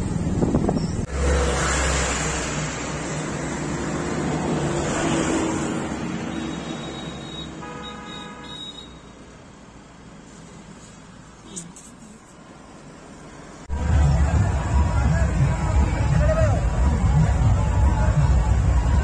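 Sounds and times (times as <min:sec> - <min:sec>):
vehicle passing by: 0:00.0 - 0:07.1.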